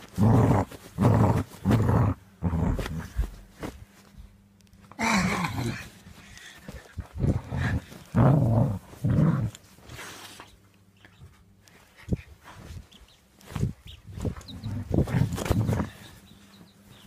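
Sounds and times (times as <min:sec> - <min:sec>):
dog growling: 0:00.0 - 0:03.2, 0:07.0 - 0:09.6.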